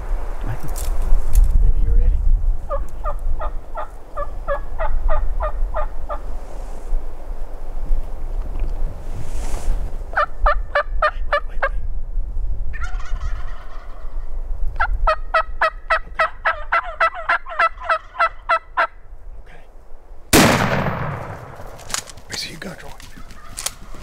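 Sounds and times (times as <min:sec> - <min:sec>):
turkey calling: 0:02.7 - 0:06.3, 0:10.1 - 0:11.8, 0:12.7 - 0:19.7, 0:22.2 - 0:24.0
shotgun shot: 0:20.3 - 0:22.2.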